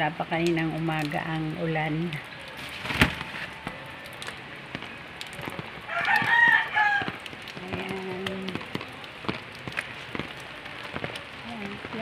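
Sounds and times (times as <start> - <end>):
rain tapping on umbrella: 0.0 - 12.0
rooster crowing: 5.9 - 7.2.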